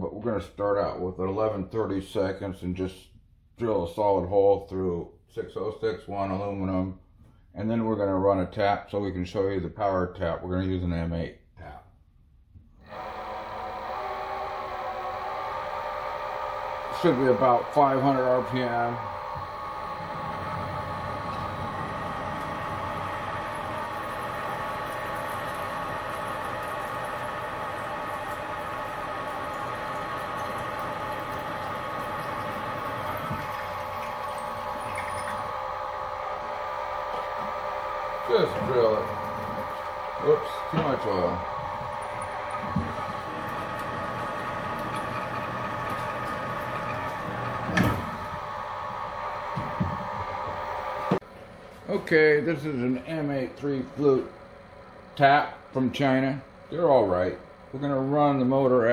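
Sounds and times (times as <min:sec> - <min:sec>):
milling machine drilling metal: 0:12.8 - 0:51.2.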